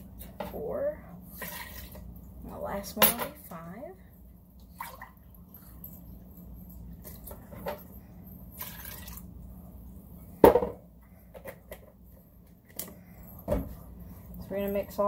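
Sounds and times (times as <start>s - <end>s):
juice pouring into a cup: 8.6s - 9.3s
object knocking on counter: 10.4s - 10.8s.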